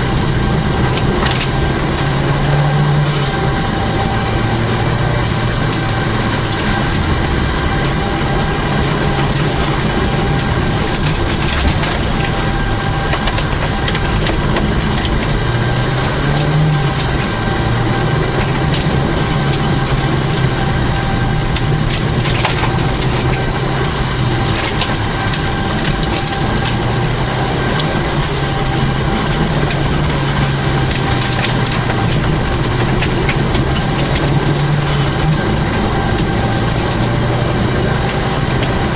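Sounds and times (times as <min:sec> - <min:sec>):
rally car engine revving: 0:00.0 - 0:38.9
tyre and road noise: 0:00.0 - 0:38.9.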